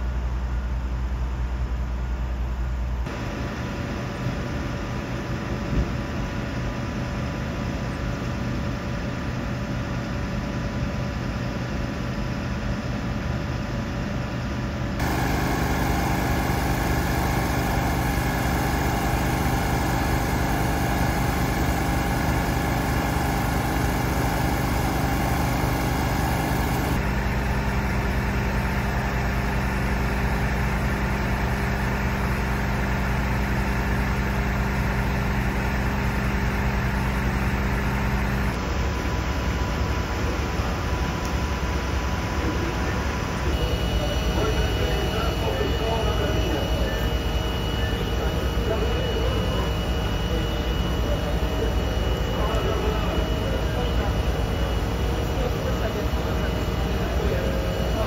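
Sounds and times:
steady whining tones: 15.0s - 27.1s, 35.1s - 58.0s
vehicle engines idling: 15.0s - 39.1s.

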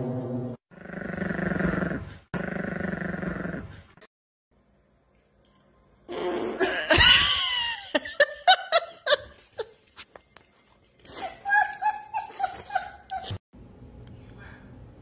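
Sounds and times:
person laughing: 6.6s - 9.8s, 11.1s - 13.4s.

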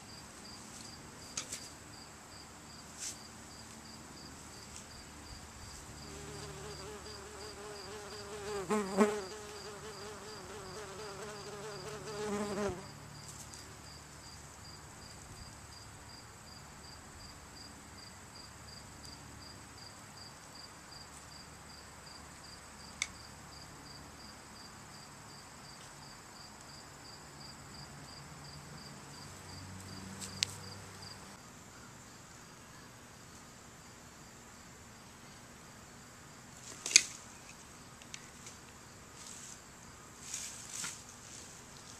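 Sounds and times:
high insect drone: 0.0s - 18.8s
insects chirping: 0.0s - 36.1s
flying insect buzzing: 6.0s - 12.9s.

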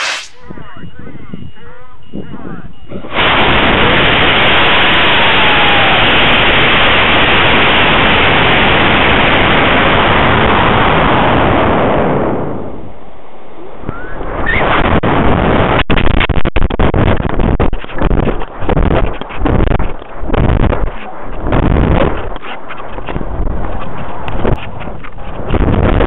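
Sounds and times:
air rushing over rocket camera: 0.0s - 0.4s
gusty wind buffeting: 2.2s - 26.0s.

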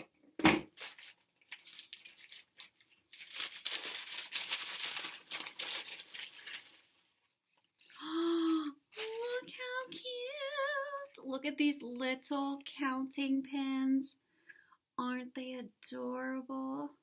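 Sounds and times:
package torn and crinkled: 0.8s - 7.0s.

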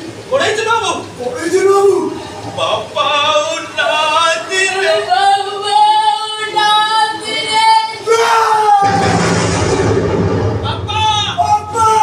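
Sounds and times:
person singing unaccompanied: 2.6s - 8.7s.

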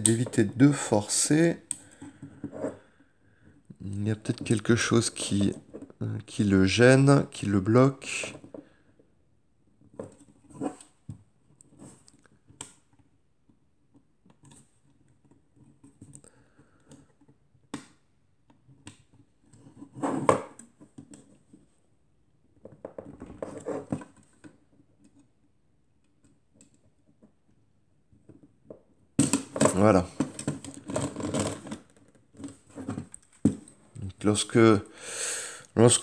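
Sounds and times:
rubbing and rattling: 29.2s - 34.4s.

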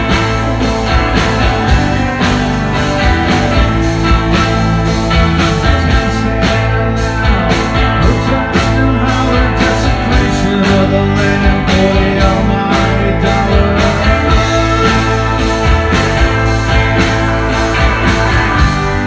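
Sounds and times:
drums keeping a steady beat: 0.0s - 19.0s
electric bass: 0.0s - 19.0s
electric guitars: 0.0s - 19.0s
man singing lead: 3.8s - 16.2s.

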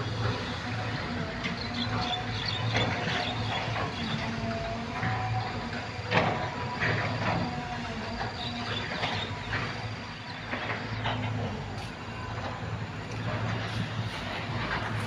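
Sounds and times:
low engine hum: 0.0s - 15.0s
rustling noises: 10.7s - 15.0s.

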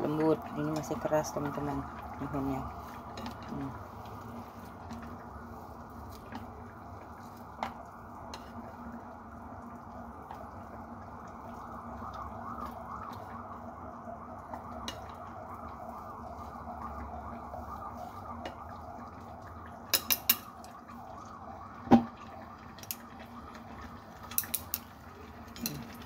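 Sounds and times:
water boiling in a saucepan: 0.0s - 26.0s
chopsticks clacking against pan: 24.3s - 24.8s.

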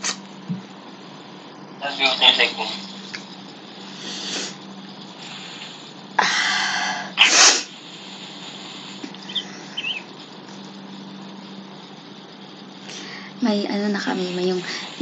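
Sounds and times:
steady low hum: 0.0s - 15.0s
noisy breath in: 3.7s - 10.0s, 12.8s - 13.4s, 14.6s - 15.0s
person sneezing: 7.2s - 7.7s.

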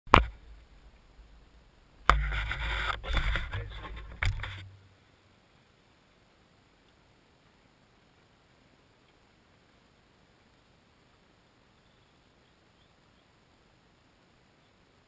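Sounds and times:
camera rubbing and scraping: 2.1s - 4.7s.

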